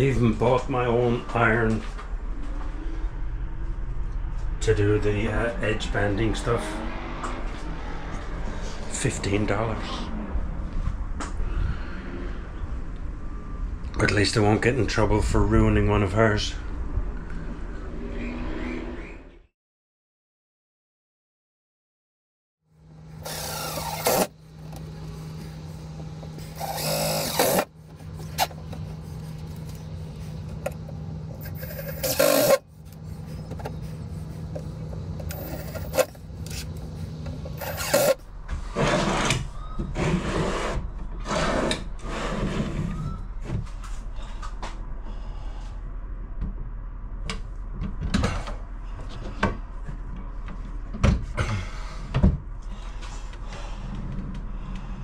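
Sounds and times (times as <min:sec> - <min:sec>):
steady low hum: 0:22.8 - 0:39.7
cordless drill driving screws: 0:23.2 - 0:24.8, 0:26.4 - 0:27.7, 0:31.4 - 0:32.6, 0:35.2 - 0:36.2, 0:37.5 - 0:38.2
knocks scrapes and rattles: 0:26.2 - 0:43.0.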